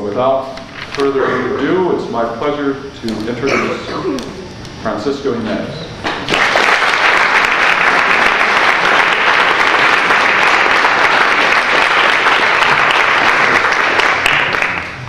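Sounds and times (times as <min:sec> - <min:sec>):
audience applauding: 0:06.1 - 0:15.0.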